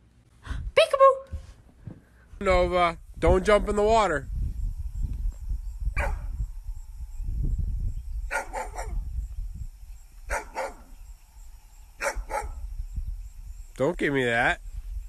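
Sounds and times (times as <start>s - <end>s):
dog barking: 6.0s - 6.3s, 8.3s - 9.0s, 10.3s - 10.9s, 12.0s - 12.6s.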